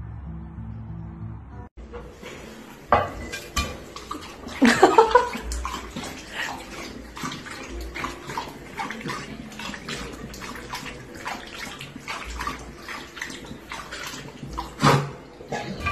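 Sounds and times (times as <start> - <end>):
tap water running into sink: 1.9 - 15.9
dog lapping water: 3.2 - 15.9.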